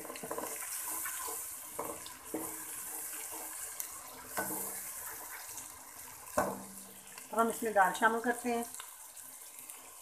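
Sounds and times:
wooden spoon scraping pot: 0.0s - 5.6s
food sizzling in hot oil: 0.0s - 10.0s.

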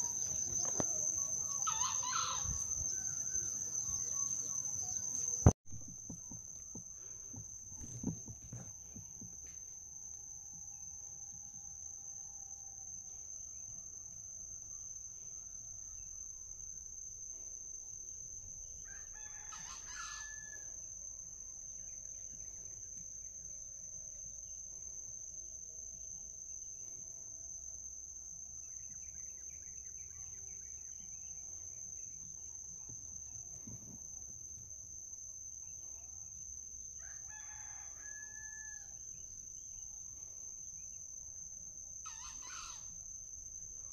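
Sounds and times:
rooster crowing: 1.5s - 4.1s, 18.8s - 20.8s, 37.0s - 39.0s, 42.0s - 42.9s.

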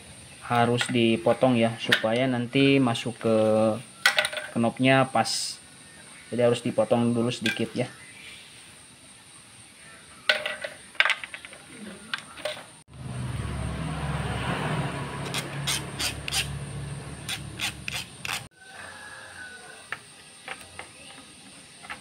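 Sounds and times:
file rasping on metal: 15.2s - 16.5s, 17.3s - 18.5s
small parts clicking: 17.3s - 18.5s.

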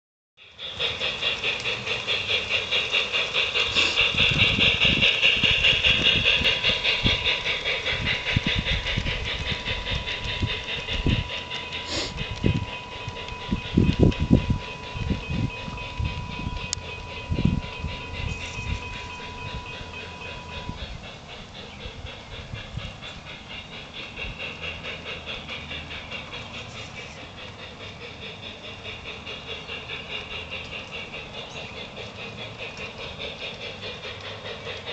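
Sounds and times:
model train pulsing hiss: 0.4s - 34.9s
wheels clicking on rails: 0.4s - 34.9s.

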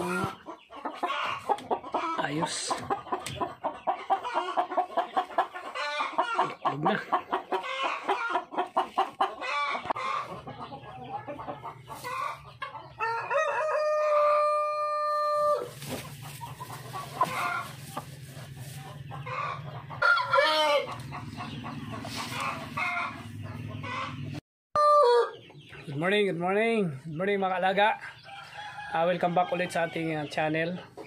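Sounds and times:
chickens clucking: 0.0s - 31.0s
rooster crowing: 13.0s - 15.7s, 20.0s - 20.9s, 24.8s - 25.3s.

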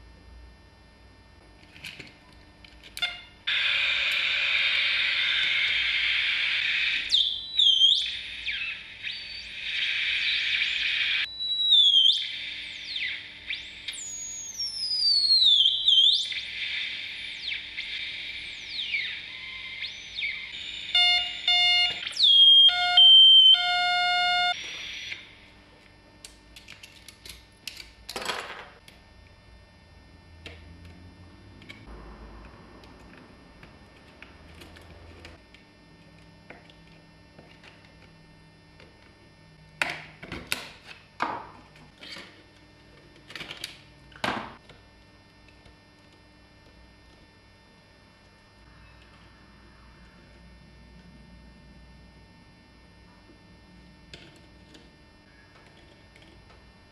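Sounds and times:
harsh electronic beeps and buzzing: 3.0s - 25.5s.

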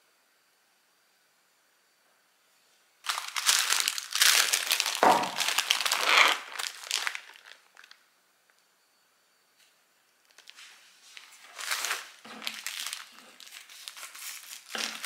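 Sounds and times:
plastic bag crinkling: 3.0s - 8.0s, 10.2s - 15.0s.

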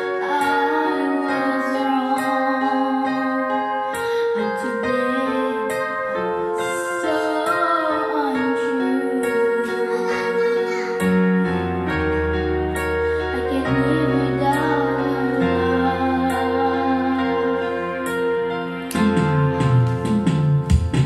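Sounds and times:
girl singing into microphone: 0.0s - 19.6s
karaoke backing track with piano: 0.0s - 21.0s
deep bass notes: 11.1s - 21.0s.

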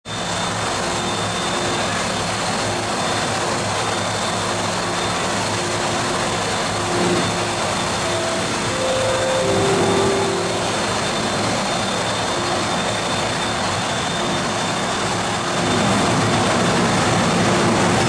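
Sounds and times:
train humming at platform: 0.1s - 18.0s
thin high whine: 3.9s - 15.7s.

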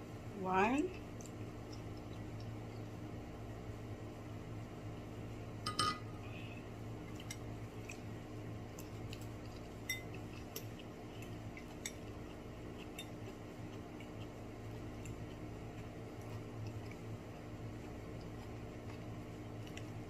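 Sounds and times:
steady low hum: 0.0s - 20.0s
tableware clinking: 5.7s - 6.1s.

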